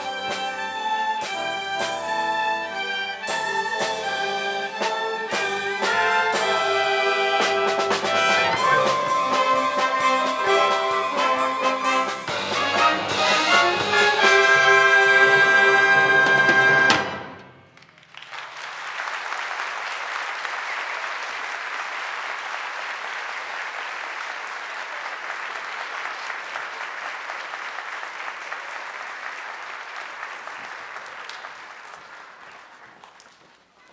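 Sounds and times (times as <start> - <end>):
audience applauding: 7.4 - 14.8, 15.8 - 33.9.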